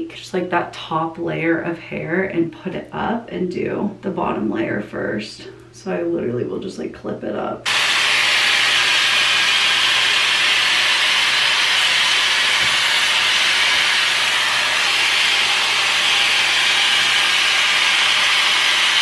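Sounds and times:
hair styler blowing air: 7.6 - 19.0.

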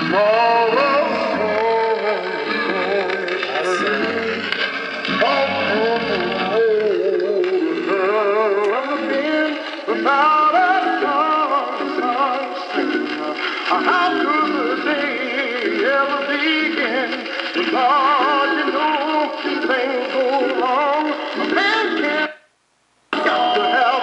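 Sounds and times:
song on record player speaker: 0.0 - 24.0.

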